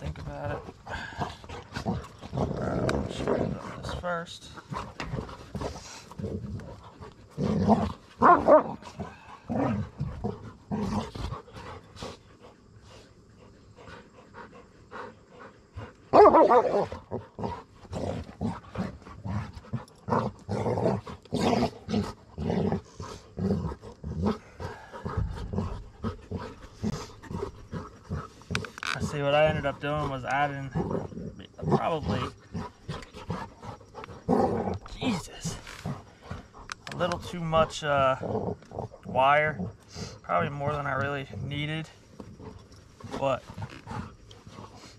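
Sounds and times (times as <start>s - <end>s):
dog barking: 16.1s - 16.9s.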